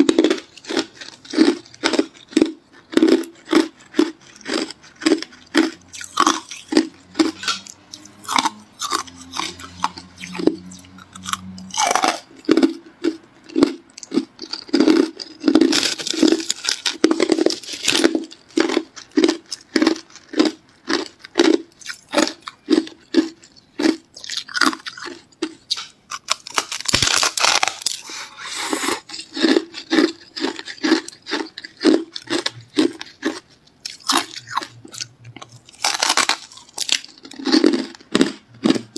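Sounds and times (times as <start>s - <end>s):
ice being crunched and chewed: 0.0s - 38.9s.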